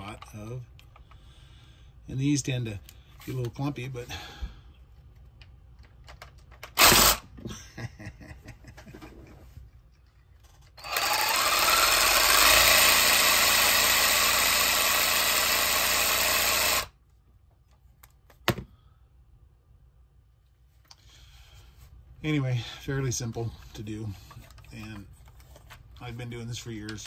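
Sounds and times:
reciprocating saw motor running: 6.8s - 7.2s, 10.8s - 16.9s.

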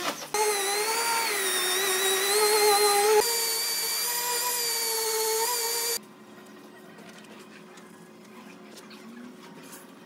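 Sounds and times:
sander whining: 0.4s - 6.0s.

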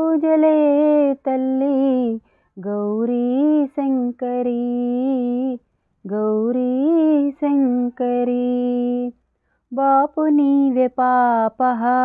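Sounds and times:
woman singing unaccompanied: 0.0s - 12.0s.

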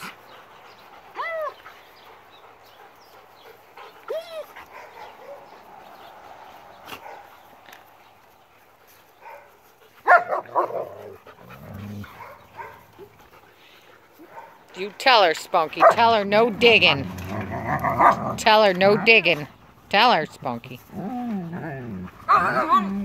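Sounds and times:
dogs barking: 4.4s - 6.2s, 6.8s - 7.4s, 9.2s - 13.1s, 14.2s - 14.7s, 15.8s - 16.3s, 17.8s - 19.4s.

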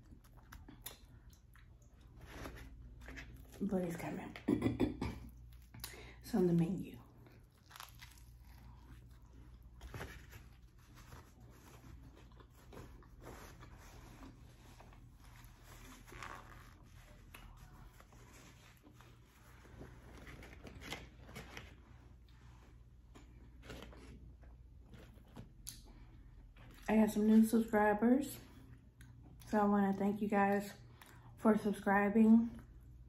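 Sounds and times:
person chewing food: 0.0s - 3.6s, 7.2s - 15.8s.

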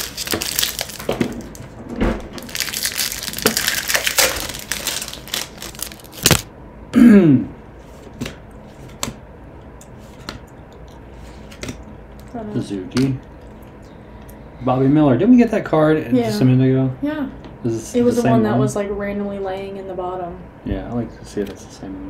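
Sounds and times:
wrapper tearing and crinkling: 0.0s - 1.7s, 2.4s - 6.5s.

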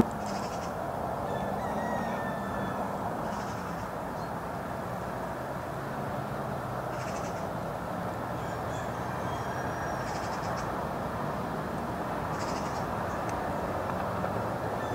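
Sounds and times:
wind: 0.0s - 14.9s
faint bird calls: 0.2s - 3.9s, 6.9s - 7.5s, 8.4s - 10.7s, 12.3s - 13.3s.

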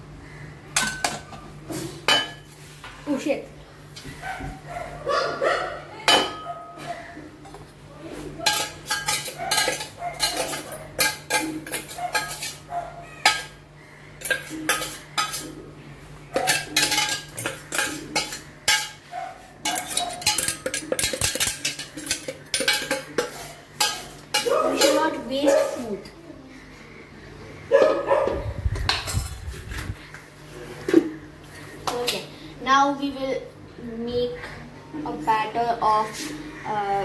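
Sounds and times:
metal spoon scraping steel jar: 8.5s - 12.6s, 14.2s - 15.5s, 16.4s - 19.0s, 19.6s - 25.1s.

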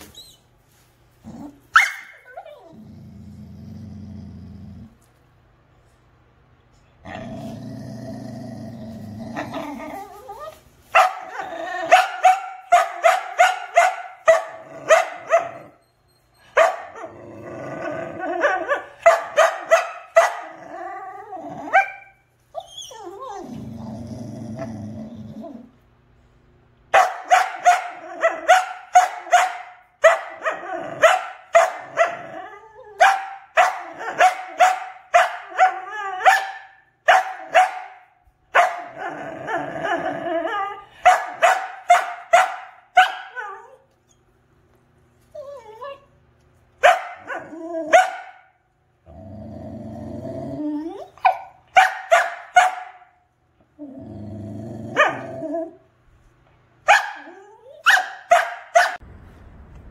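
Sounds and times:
dog growling: 1.2s - 1.7s, 2.4s - 5.1s, 7.0s - 10.5s, 11.3s - 12.0s, 14.5s - 15.7s, 17.0s - 18.9s, 20.4s - 21.9s, 23.0s - 25.8s, 30.6s - 31.1s, 31.8s - 33.0s, 38.9s - 41.0s, 49.0s - 51.2s, 53.8s - 55.8s
dog barking aggressively: 1.7s - 2.2s, 10.9s - 15.7s, 16.6s - 17.2s, 18.6s - 20.6s, 26.9s - 32.3s, 33.0s - 39.0s, 41.0s - 43.4s, 46.8s - 48.5s, 51.2s - 53.1s, 56.8s - 59.0s.

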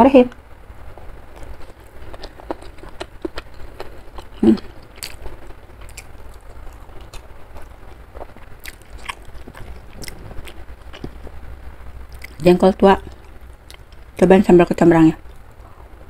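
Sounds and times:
close chewing and biting: 1.3s - 11.4s, 12.1s - 12.4s.

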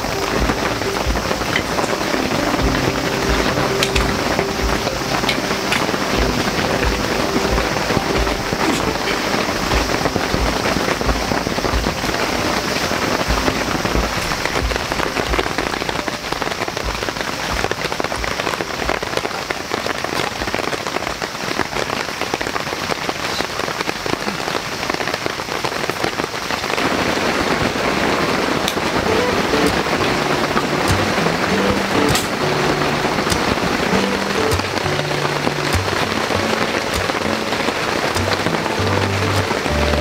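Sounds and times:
low bumps: 0.0s - 21.3s
rain pattering on tent canvas: 0.0s - 40.0s.

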